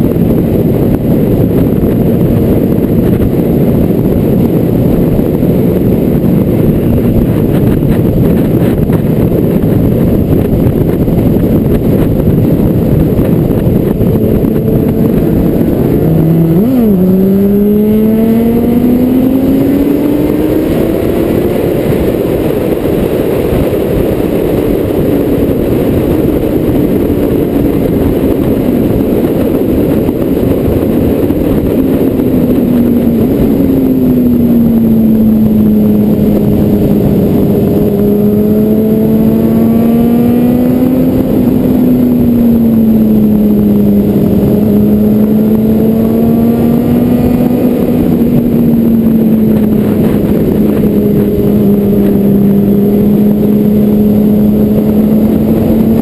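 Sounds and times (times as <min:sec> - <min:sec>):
car engine drone: 0:00.0 - 0:56.0
road and wind noise: 0:00.0 - 0:56.0.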